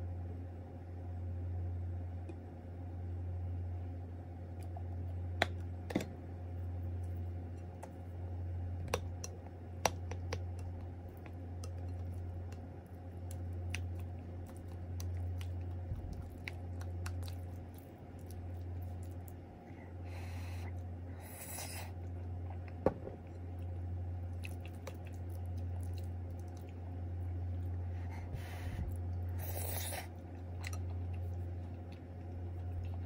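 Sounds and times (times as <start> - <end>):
steady low hum: 0.0 - 33.0
sauced rice squishing: 4.5 - 19.7, 23.5 - 33.0.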